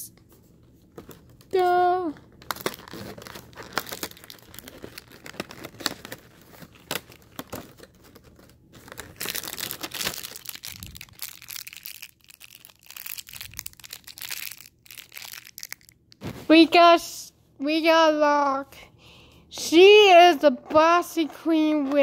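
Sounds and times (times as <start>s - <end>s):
packaging crinkling and tearing: 1.0s - 16.5s.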